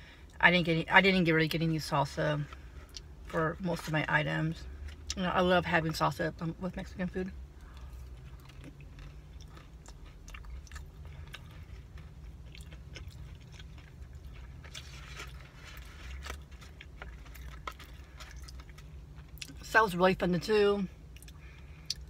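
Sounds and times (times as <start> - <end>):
steady low hum: 0.0 - 22.0
chewing with wet mouth clicks: 7.7 - 15.4, 16.2 - 19.6, 21.1 - 22.0.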